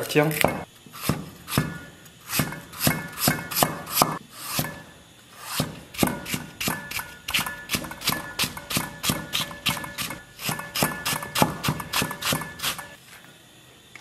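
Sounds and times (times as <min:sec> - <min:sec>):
cleaver chopping on wooden board: 0:02.4 - 0:04.8, 0:05.6 - 0:12.5.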